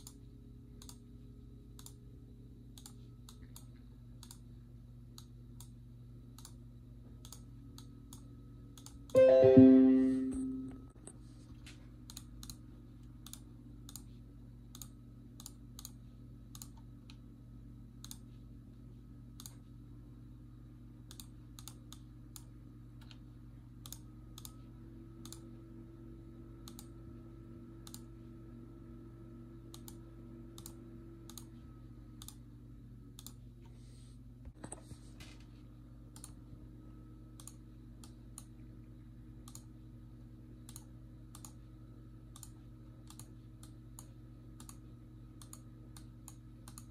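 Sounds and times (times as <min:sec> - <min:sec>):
low electrical hum: 0:00.0 - 0:46.9
faint computer clicking: 0:00.8 - 0:01.1, 0:01.7 - 0:02.0, 0:02.7 - 0:04.5, 0:05.1 - 0:09.2, 0:12.0 - 0:14.1, 0:14.7 - 0:17.2, 0:18.0 - 0:18.4, 0:21.0 - 0:24.6, 0:25.2 - 0:25.5, 0:26.6 - 0:27.0, 0:27.8 - 0:28.1, 0:29.7 - 0:31.6, 0:32.2 - 0:32.4, 0:33.1 - 0:33.4, 0:36.1 - 0:36.4, 0:37.4 - 0:38.6, 0:39.4 - 0:39.8, 0:40.6 - 0:41.6, 0:42.3 - 0:44.8, 0:45.4 - 0:46.9.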